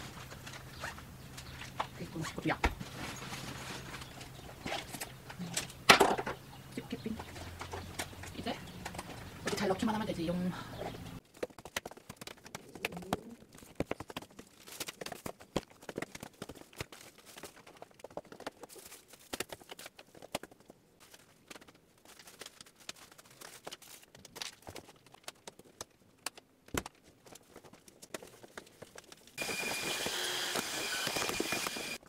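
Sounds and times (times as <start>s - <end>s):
belongings clicking and knocking: 0.0s - 21.7s.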